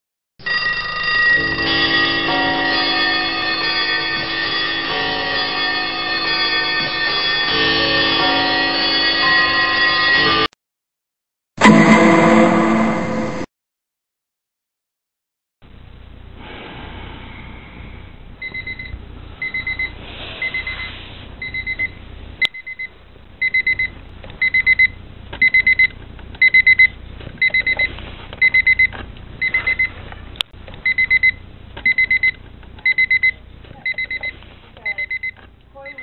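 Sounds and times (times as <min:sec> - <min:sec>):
alarm clock beeping: 0:00.4 - 0:10.5, 0:18.4 - 0:30.0, 0:30.8 - 0:36.0.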